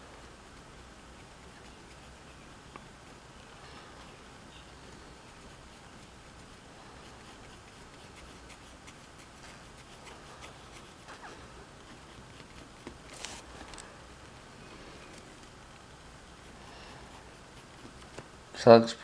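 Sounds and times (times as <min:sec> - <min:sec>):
pencil scratching on paper: 0:00.0 - 0:03.2, 0:05.2 - 0:13.4, 0:16.4 - 0:18.2.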